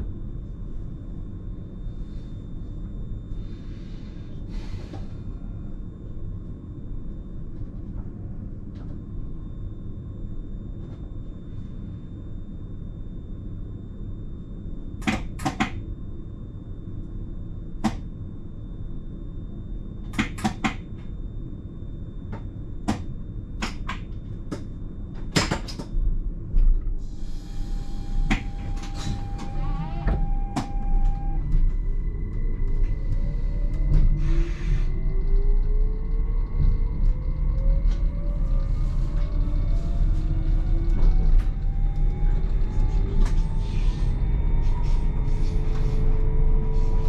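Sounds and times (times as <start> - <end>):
train cab low hum: 0.0 - 47.0
train motor whine rising: 27.0 - 47.0.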